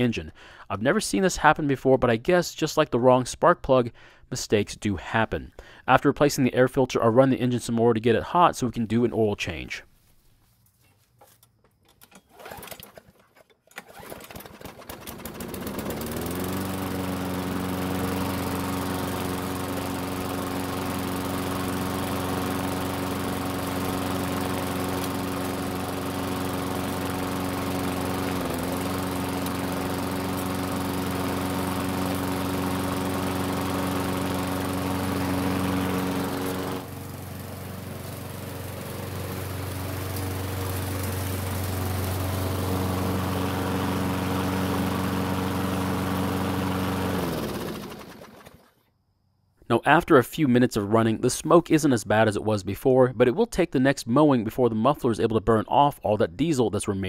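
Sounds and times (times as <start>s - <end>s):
lawn mower engine running: 11.2s - 48.8s.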